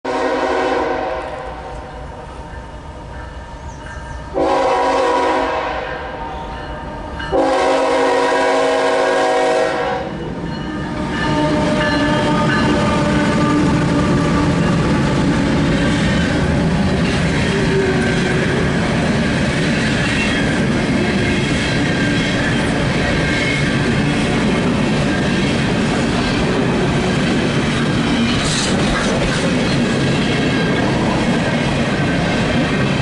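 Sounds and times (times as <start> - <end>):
locomotive air horn: 0.1 - 2.0, 4.3 - 6.5, 7.3 - 10.1, 10.9 - 14.6
locomotive engine and wheels rumbling: 0.1 - 33.0.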